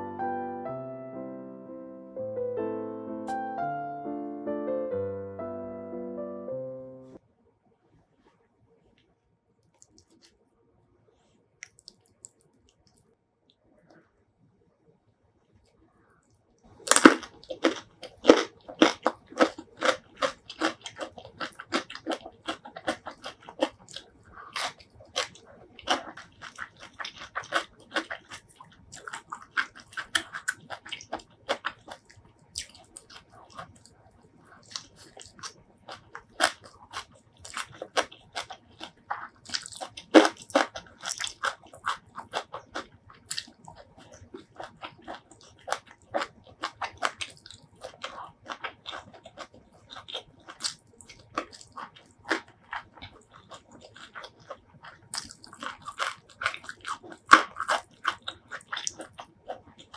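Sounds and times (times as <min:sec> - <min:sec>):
crunchy biting and chewing: 0:16.7 - 0:59.9.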